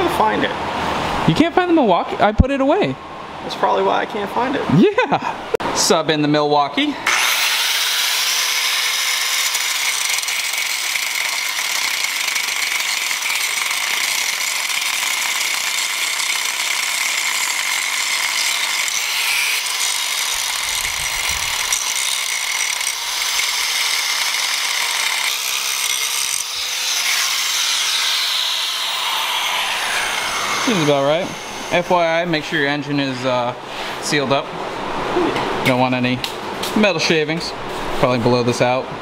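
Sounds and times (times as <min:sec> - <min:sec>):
power tool grinding metal: 0:07.0 - 0:33.3.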